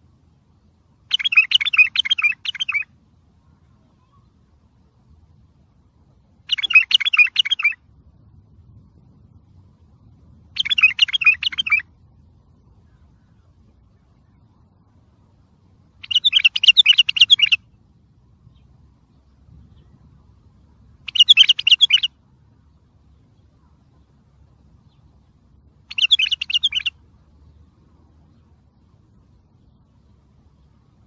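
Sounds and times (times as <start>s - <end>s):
bulbul singing rapid notes: 25.9s - 27.0s.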